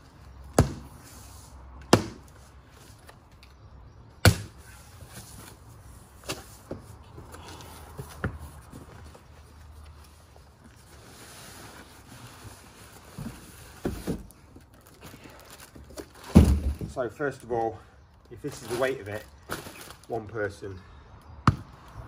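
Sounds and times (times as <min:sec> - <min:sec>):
cardboard flaps cracking open: 0:15.8 - 0:16.9.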